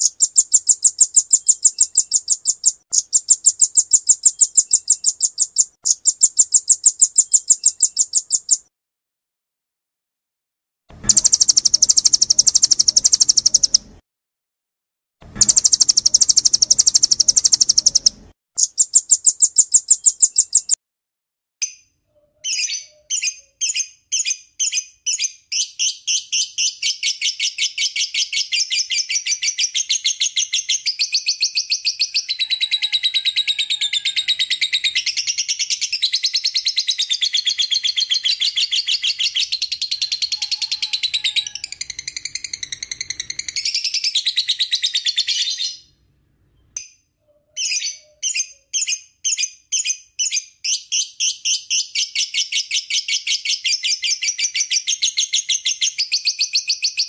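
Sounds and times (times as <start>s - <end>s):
bird chips and chattering trill: 0.0s - 8.7s, 11.0s - 13.9s, 15.4s - 20.8s
buzzy high bird trills: 0.0s - 8.7s, 11.0s - 14.0s, 15.4s - 20.8s.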